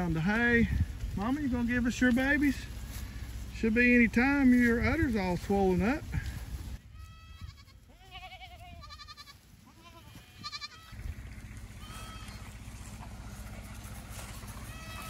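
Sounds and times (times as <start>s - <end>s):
goats bleating: 6.3s - 11.0s, 11.6s - 15.0s.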